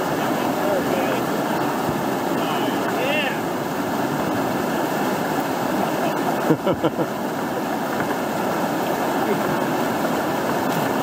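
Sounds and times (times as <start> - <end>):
river whitewater rushing: 0.0 - 11.0
voice: 0.5 - 1.2, 2.4 - 3.4.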